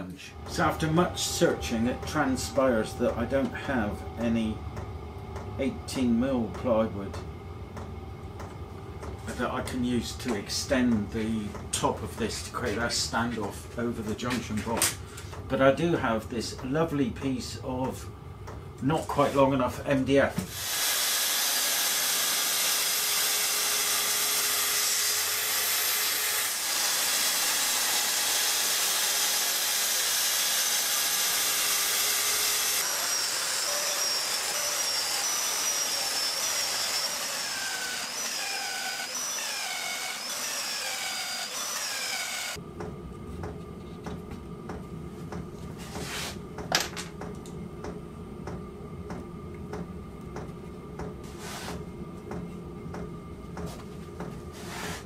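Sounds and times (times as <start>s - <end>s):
workshop background: 0.0s - 55.0s
track saw cutting: 0.2s - 4.6s, 20.5s - 42.6s.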